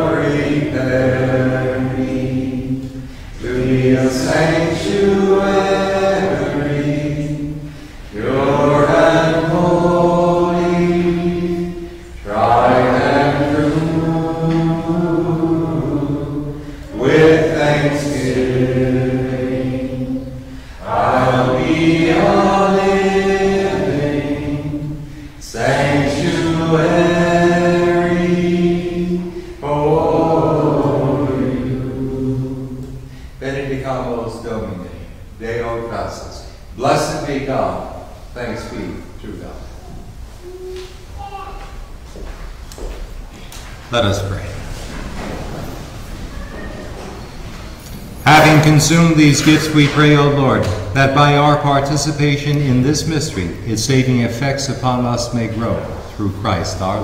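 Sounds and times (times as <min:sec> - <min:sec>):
unaccompanied chant singing: 0:00.0 - 0:39.6.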